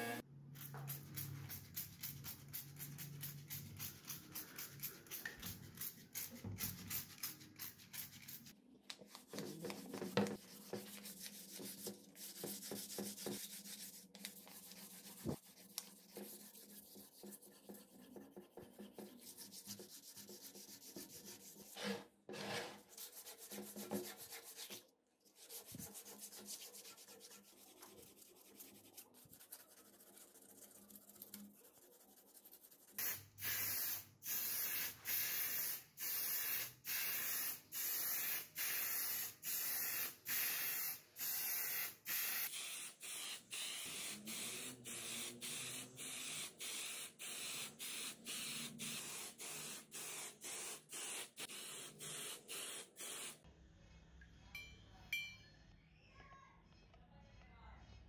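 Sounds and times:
spray paint can hissing: 0.5 - 8.5, 33.0 - 53.4.

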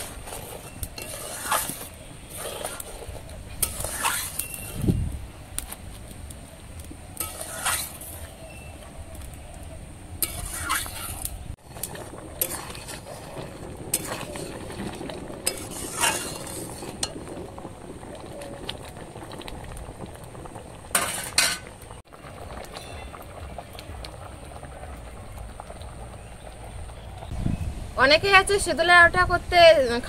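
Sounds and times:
metal spatula scraping wok: 0.0 - 4.9, 7.2 - 8.7, 10.2 - 17.3, 20.9 - 21.7
stew bubbling: 0.0 - 27.3.

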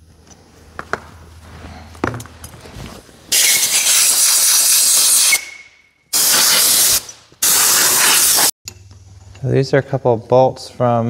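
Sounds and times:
compressed air blasts hissing: 3.3 - 8.6.

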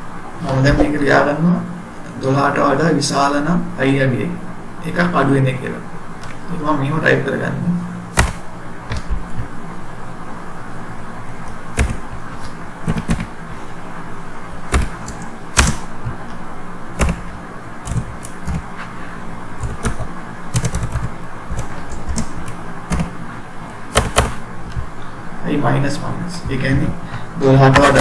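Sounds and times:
keyboard typing clicks: 8.1 - 9.2, 11.4 - 12.0, 12.8 - 13.3, 14.7 - 15.9, 17.0 - 18.7, 19.6 - 23.1, 23.9 - 24.8.

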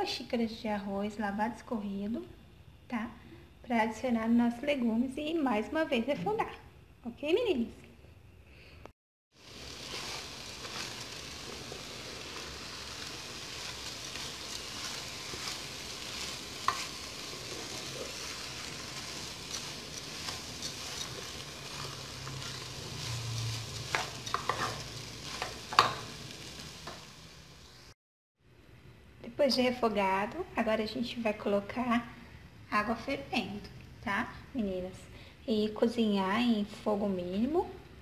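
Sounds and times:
rice and vegetables sizzling: 9.3 - 28.0
spoon scraping metal pot: 23.9 - 26.0.

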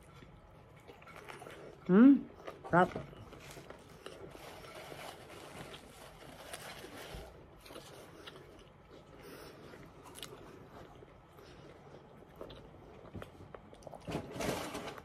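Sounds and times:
person chewing: 0.0 - 14.1.

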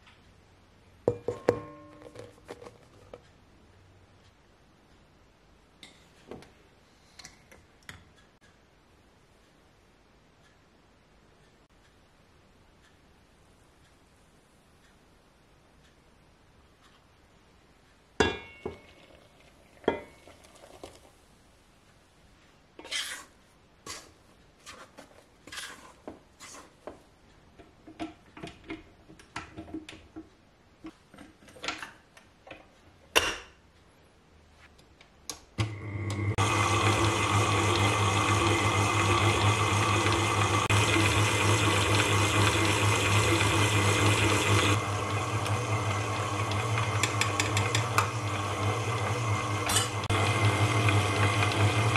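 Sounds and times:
stand mixer motor hum: 35.6 - 51.9
mixing bowl and beater clinking: 36.1 - 51.9.

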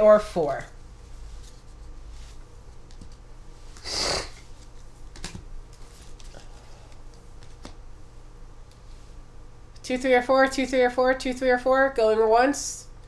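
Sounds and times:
person sniffing: 3.8 - 4.5.

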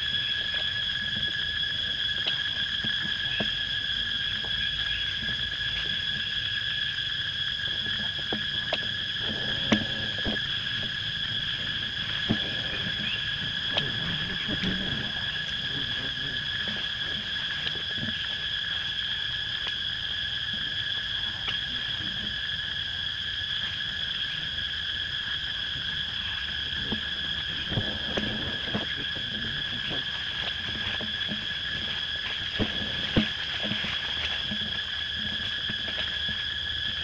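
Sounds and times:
high-pitched insect drone: 0.0 - 37.0.

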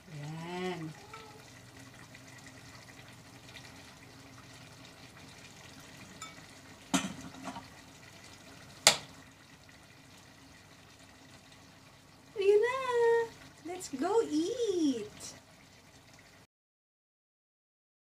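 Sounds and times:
stew simmering hiss: 0.0 - 16.5
spoon clinking on dishes: 6.1 - 6.4.

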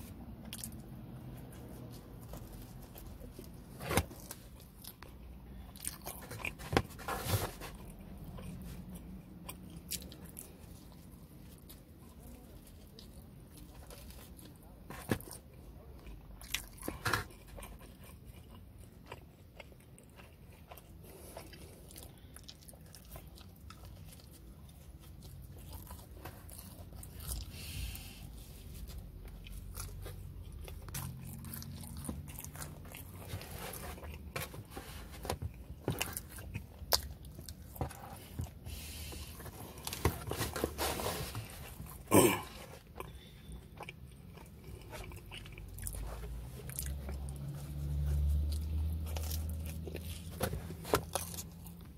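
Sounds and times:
biting and chewing: 0.4 - 27.8, 28.8 - 51.9.

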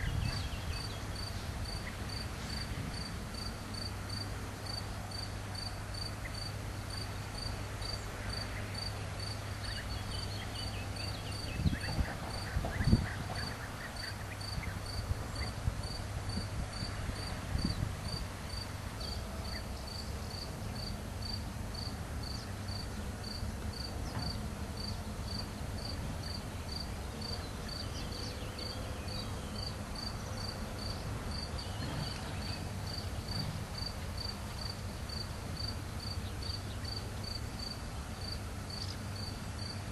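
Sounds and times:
insect chirping: 13.4 - 23.9.

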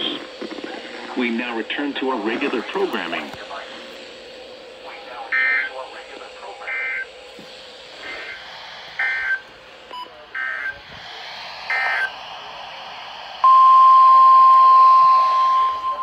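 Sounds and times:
digital warbling data bursts: 4.8 - 7.1, 9.0 - 10.8, 11.7 - 12.1
loud steady single-pitched tone: 5.2 - 5.8, 6.6 - 7.2, 9.0 - 10.8, 11.7 - 12.2, 13.4 - 16.0.

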